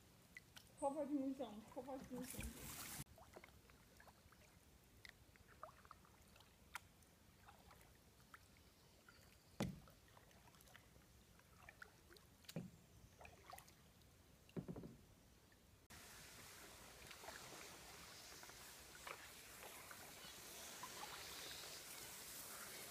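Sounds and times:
faint water ticks: 0.2s - 14.7s, 16.9s - 22.9s
paddle knock and splash: 9.6s - 10.8s.

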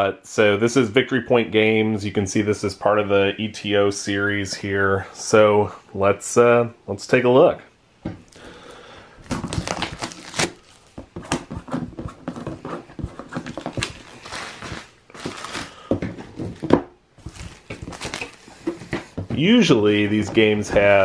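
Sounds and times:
plastic shrink-wrap crinkling: 9.2s - 11.4s, 12.4s - 18.8s.

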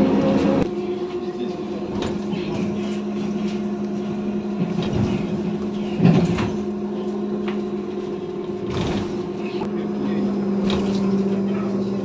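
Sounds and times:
trolleybus electrical hum: 0.0s - 12.0s
vehicle body rattling: 4.4s - 6.7s, 8.4s - 9.6s.

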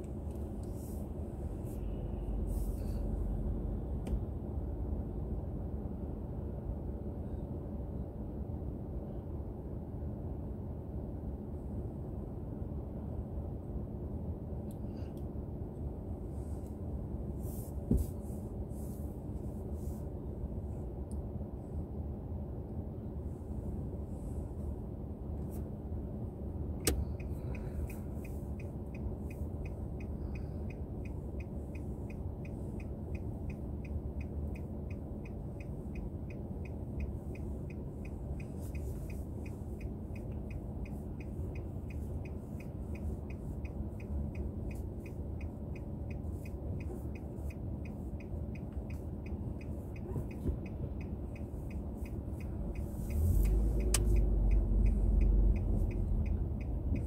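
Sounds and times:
car engine idling hum: 0.0s - 57.0s
turn signal ticking: 26.7s - 57.0s.

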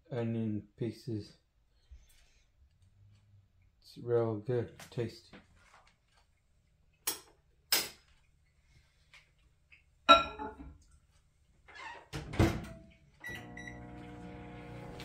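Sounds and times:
dish clinking: 10.1s - 10.7s
microwave humming: 13.2s - 15.0s.

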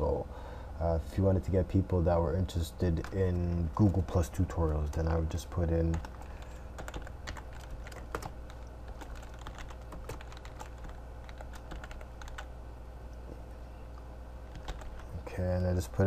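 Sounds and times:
steady low hum: 0.0s - 16.0s
keyboard typing clicks: 5.9s - 12.5s, 14.5s - 15.1s.

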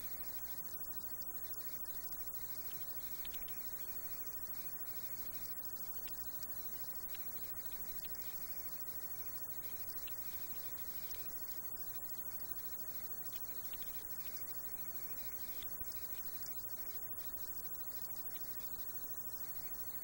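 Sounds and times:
faint clicks: 1.3s - 20.0s.

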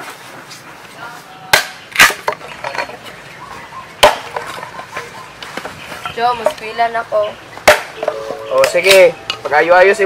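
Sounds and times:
axe chopping wood: 1.5s - 2.4s, 4.0s - 4.5s, 7.6s - 8.0s.

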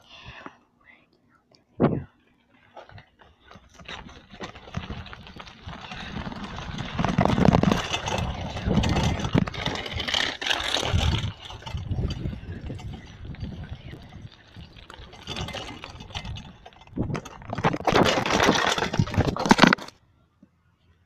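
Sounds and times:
knocks and rattles: 2.7s - 19.9s
wind buffeting microphone: 3.8s - 19.3s.

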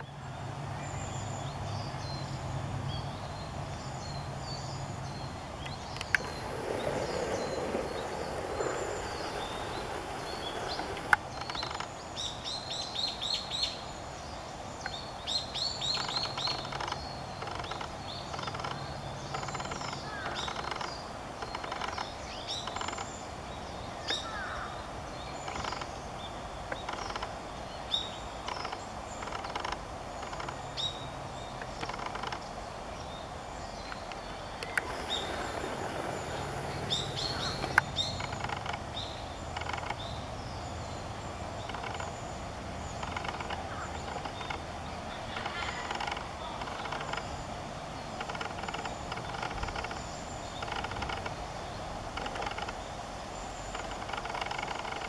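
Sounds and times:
birds chirping and calling: 5.6s - 13.5s, 33.7s - 40.6s, 41.6s - 47.5s.

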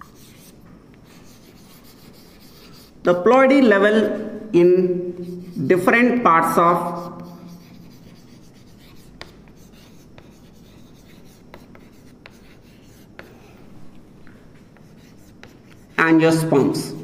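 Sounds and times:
chalk scratching on blackboard: 0.0s - 3.0s, 5.2s - 5.9s, 6.7s - 13.5s, 14.6s - 17.0s
chalk tapping on board: 7.0s - 13.4s, 14.6s - 16.0s.

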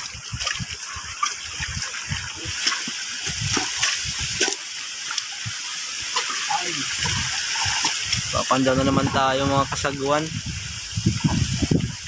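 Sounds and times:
boots splashing through water: 0.0s - 5.4s, 6.1s - 9.4s.

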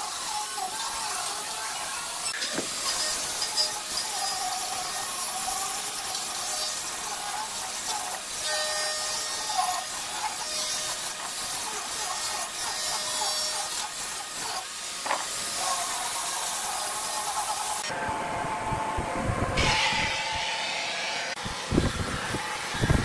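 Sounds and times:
angle grinder sanding wood: 0.0s - 18.0s.

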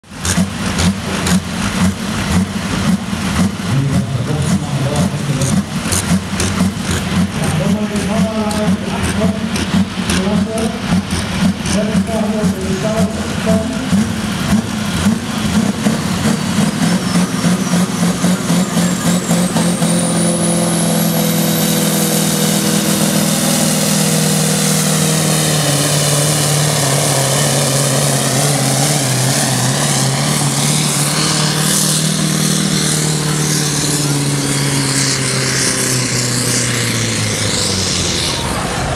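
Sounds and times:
tractor diesel engine under load: 0.0s - 38.9s
high whine rising in pitch: 11.8s - 38.9s.

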